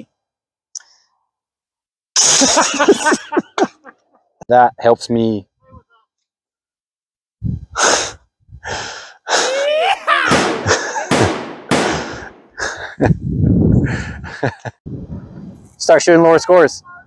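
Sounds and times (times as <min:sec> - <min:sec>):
people laughing hard: 0:02.3 - 0:04.2, 0:09.6 - 0:11.4, 0:13.9 - 0:14.8.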